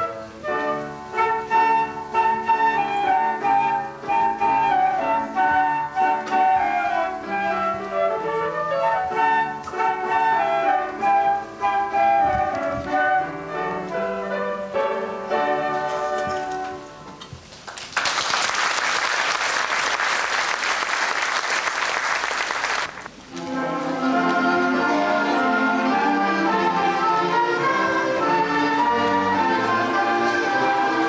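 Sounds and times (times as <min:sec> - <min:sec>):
flute duet: 0:00.0 - 0:17.1, 0:23.3 - 0:31.0
music: 0:00.0 - 0:17.6, 0:23.2 - 0:31.0
audience applause: 0:17.6 - 0:23.2.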